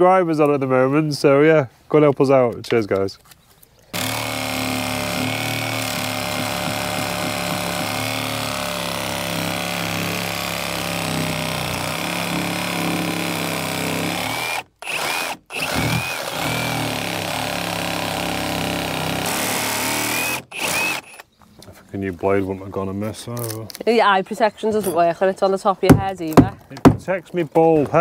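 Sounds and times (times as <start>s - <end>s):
power tool cutting wood: 3.9s - 21.2s.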